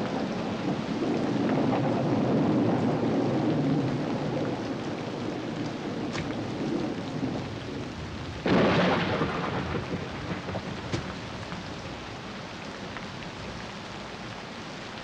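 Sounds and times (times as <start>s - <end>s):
heavy rain: 0.0s - 15.0s
thunderclap: 5.9s - 12.1s.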